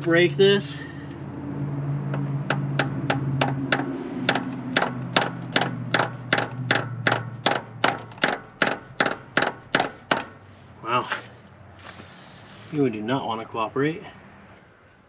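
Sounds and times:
hammer tapping on metal: 0:02.1 - 0:10.4.

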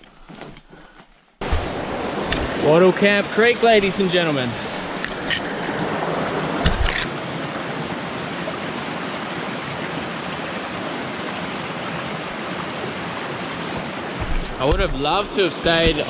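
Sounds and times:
creek water rushing: 0:01.4 - 0:16.0
short knocks: 0:13.8 - 0:16.0
low thump: 0:14.2 - 0:16.0.

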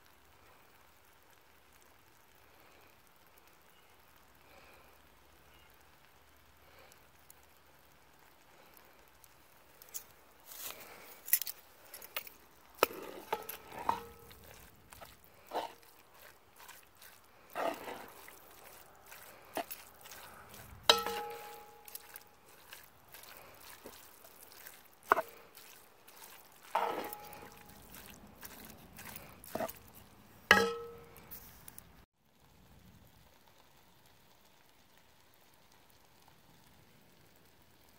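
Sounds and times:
faint hiss: 0:00.0 - 0:12.8
wooden spoon scraping pot: 0:12.0 - 0:31.8.

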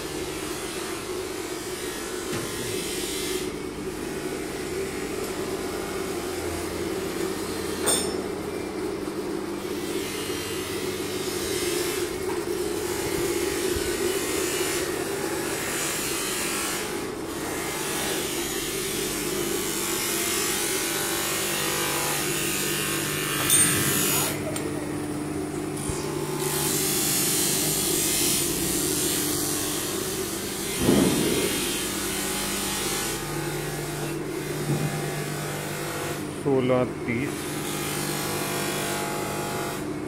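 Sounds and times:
electric motor droning: 0:09.2 - 0:39.9
sharp knock: 0:30.8 - 0:31.6.

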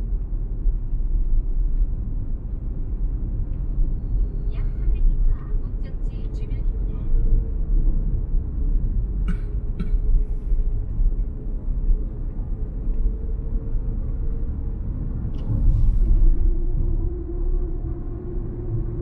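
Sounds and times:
road and tyre noise in car: 0:00.0 - 0:19.0.

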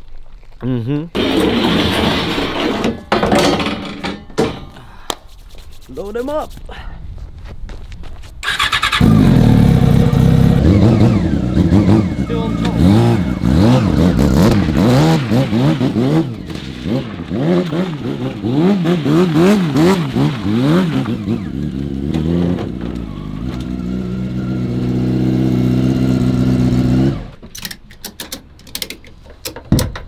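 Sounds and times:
motorcycle engine revving: 0:08.4 - 0:27.4
tie-down strap clicks: 0:27.5 - 0:29.6.

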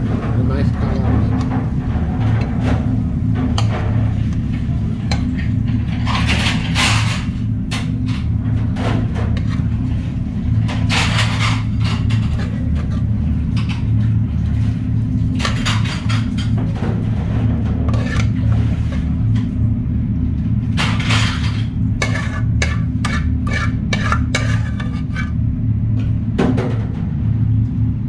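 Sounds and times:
kitchen machinery hum: 0:00.0 - 0:28.0
metal spoon scraping frying pan: 0:09.3 - 0:09.7, 0:10.8 - 0:13.1, 0:17.9 - 0:19.1, 0:20.8 - 0:25.4.

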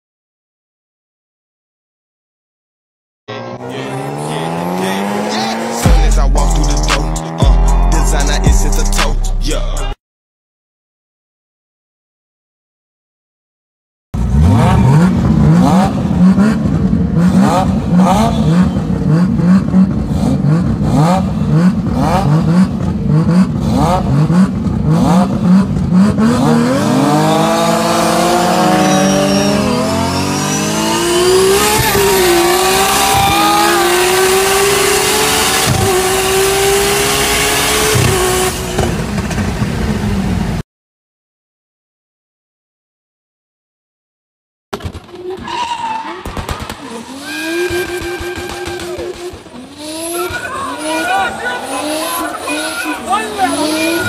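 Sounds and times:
car accelerating through gears: 0:03.3 - 0:08.4, 0:14.2 - 0:40.6, 0:46.8 - 0:54.0
drag car engine revving with pops: 0:14.2 - 0:40.5, 0:44.8 - 0:51.1.

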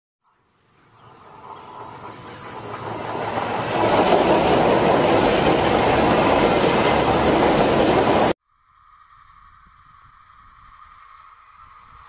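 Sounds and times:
train passing: 0:00.3 - 0:08.4.

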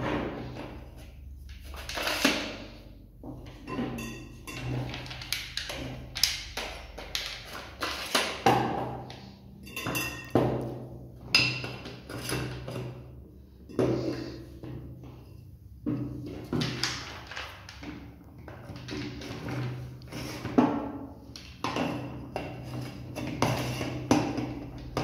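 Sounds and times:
metal tubes knocking and clinking: 0:03.2 - 0:13.1.

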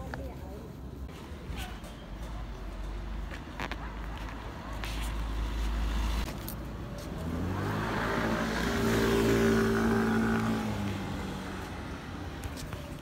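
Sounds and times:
car passing by: 0:07.0 - 0:12.5.

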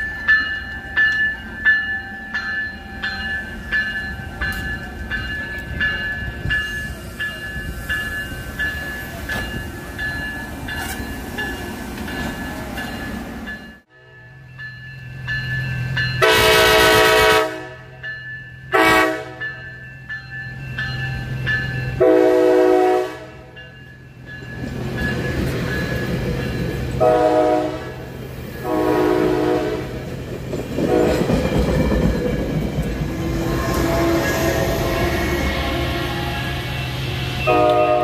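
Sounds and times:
train wheels rumbling on rails: 0:00.0 - 0:13.9, 0:14.5 - 0:38.0
crossing warning bell: 0:00.0 - 0:38.0
train horn blasts: 0:16.2 - 0:18.0, 0:18.7 - 0:19.5, 0:22.0 - 0:23.6, 0:27.0 - 0:30.0, 0:30.9 - 0:31.2, 0:33.3 - 0:38.0.

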